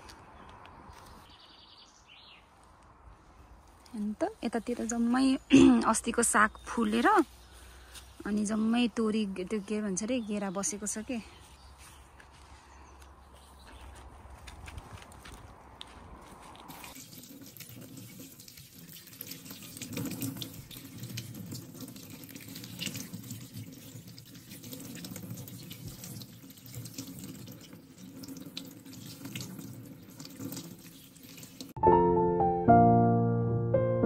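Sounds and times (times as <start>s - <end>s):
water splashing over leaves: 16.6s - 31.8s
piano music: 31.8s - 34.0s.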